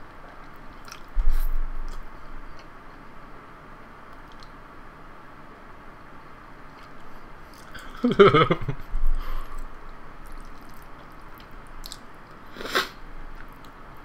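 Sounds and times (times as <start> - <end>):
close-miked chewing noodles: 0.4 - 2.7, 9.5 - 12.8
small mouth clicks: 4.1 - 4.5, 10.3 - 13.8.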